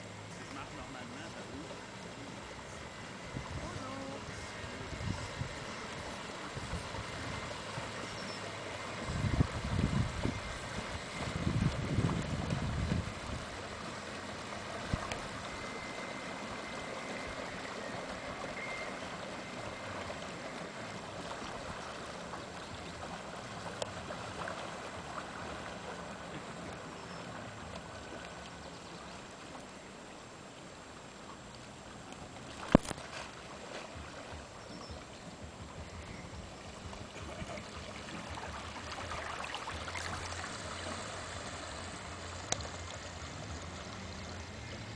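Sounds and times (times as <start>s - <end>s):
low rumbling: 0.0s - 29.4s
lake water lapping: 0.0s - 44.9s.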